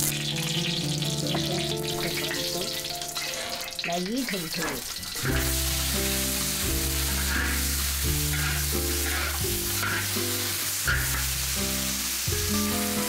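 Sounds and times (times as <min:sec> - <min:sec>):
background music sustained notes: 0:00.0 - 0:04.0, 0:05.0 - 0:13.0
fish sizzling in hot oil: 0:00.0 - 0:13.0
metal spatula scraping wok: 0:03.1 - 0:11.6.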